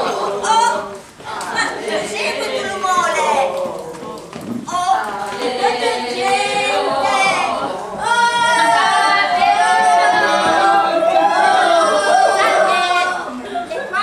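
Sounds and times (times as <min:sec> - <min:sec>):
group singing unaccompanied: 0:00.0 - 0:13.8.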